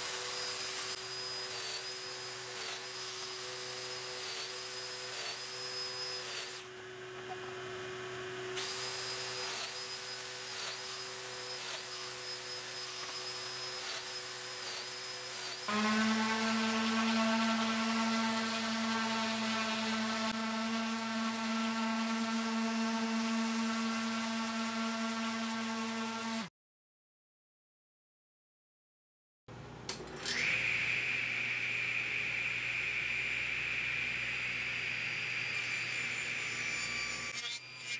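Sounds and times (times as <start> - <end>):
orbital sander running: 15.0 - 26.5.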